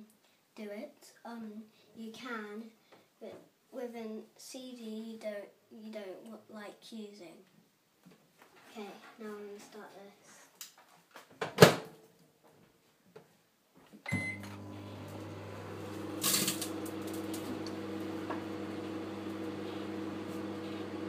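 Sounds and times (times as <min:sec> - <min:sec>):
microwave beep: 0:14.1 - 0:16.9
microwave humming: 0:14.1 - 0:21.0.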